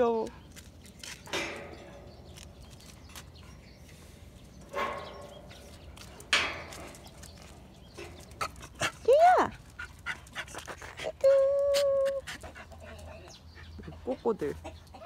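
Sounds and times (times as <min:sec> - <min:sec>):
gate latch metallic clanks: 0:04.7 - 0:05.5.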